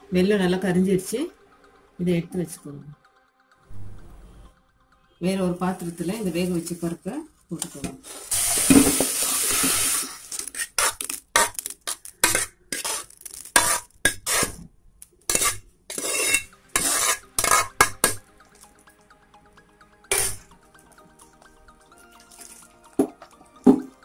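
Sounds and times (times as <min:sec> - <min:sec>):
food sliding into a pot: 0:08.0 - 0:10.8
metal spoon scraping steel pot: 0:09.4 - 0:14.6, 0:15.3 - 0:18.2, 0:20.1 - 0:20.5.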